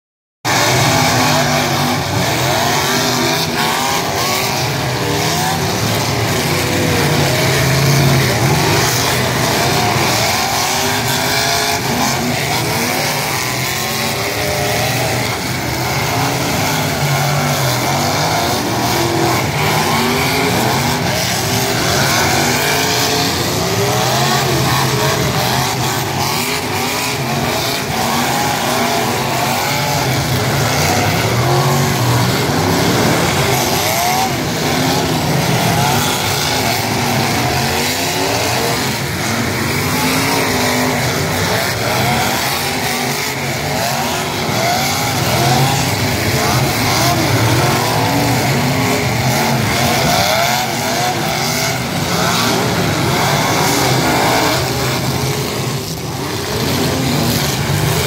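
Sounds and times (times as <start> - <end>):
racing car engines revving: 0.5 - 58.0.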